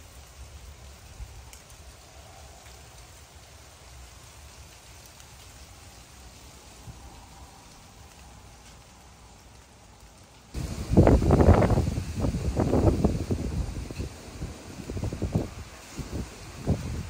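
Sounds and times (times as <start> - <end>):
light rain on concrete: 0.0 - 17.0
rain drop ticks: 0.0 - 17.0.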